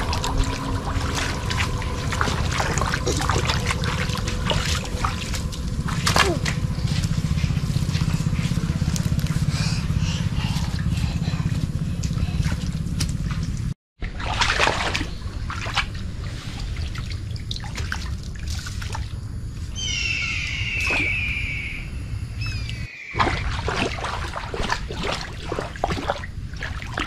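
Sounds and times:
shallow water sloshing and splashing: 0.0s - 19.5s, 23.2s - 27.0s
chirping animal call: 19.8s - 23.2s.

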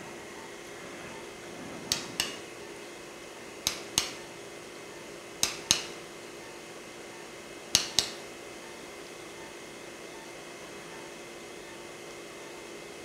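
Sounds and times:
steady low hum: 0.0s - 13.0s
mallet tapping awl: 3.6s - 4.2s, 5.4s - 6.0s, 7.7s - 8.2s.

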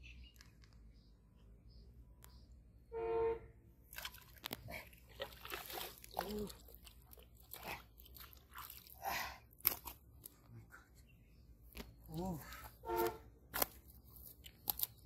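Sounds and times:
fish splashing in water: 3.9s - 10.0s.

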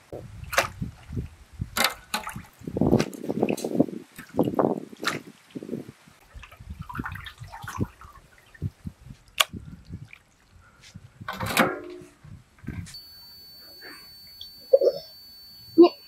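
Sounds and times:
water splashing and dripping: 0.0s - 10.8s
brief pitched squeal: 12.9s - 16.0s.

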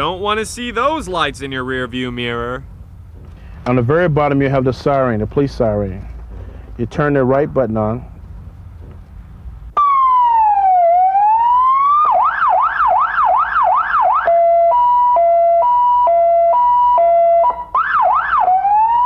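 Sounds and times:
police siren wailing and yelping: 9.8s - 19.0s.

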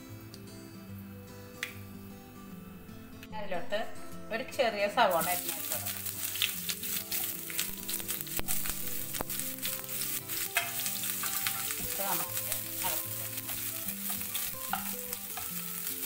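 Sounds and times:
onion sizzling in oil: 4.9s - 16.0s
sharp crackles: 5.1s - 16.0s
wooden spatula stirring: 5.2s - 16.0s.

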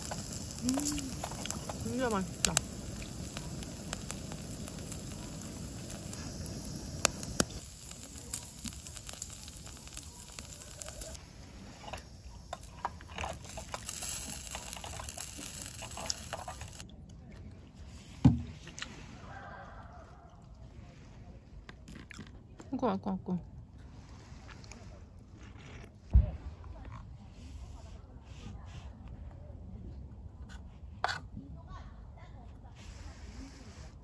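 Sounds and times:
sharp pops: 0.0s - 11.2s
meat sizzling and crackling: 0.0s - 16.8s.

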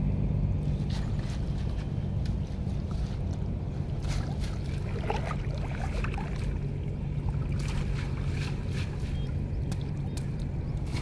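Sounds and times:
low rumble: 0.0s - 11.0s
water splashing and dripping: 4.0s - 11.0s.

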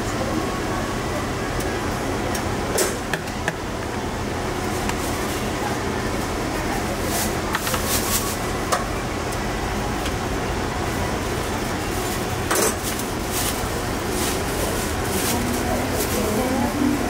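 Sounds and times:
busy food stall hum: 0.0s - 17.0s
utensils and dishes clinking: 12.5s - 13.0s.

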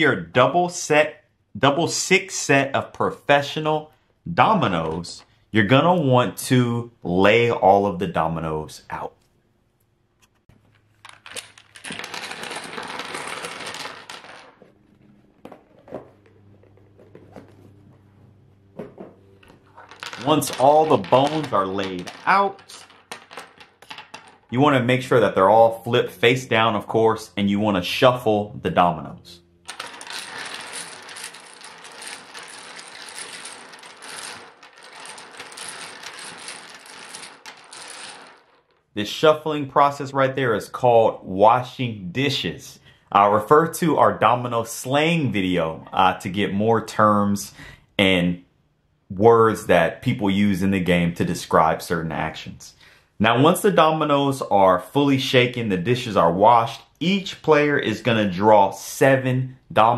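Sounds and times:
dominoes clattering on wooden table: 10.7s - 14.8s, 18.9s - 25.3s, 29.7s - 39.2s.

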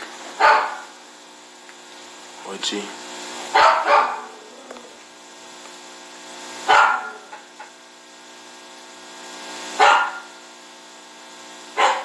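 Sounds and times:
faint hum: 0.0s - 12.0s
dog barking: 0.4s - 0.9s, 3.5s - 4.4s, 6.7s - 7.4s, 9.8s - 10.4s, 11.8s - 12.0s.

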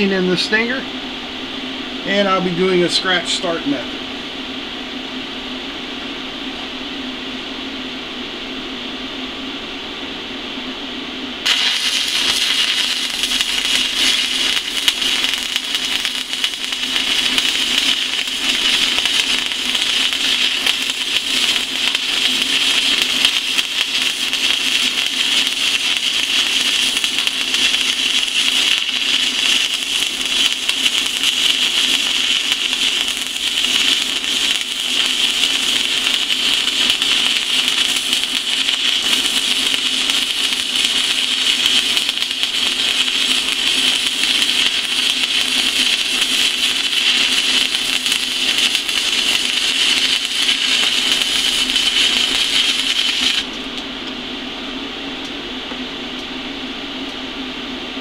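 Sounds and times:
low hum: 0.0s - 31.2s
welding arc burning: 11.4s - 53.9s.

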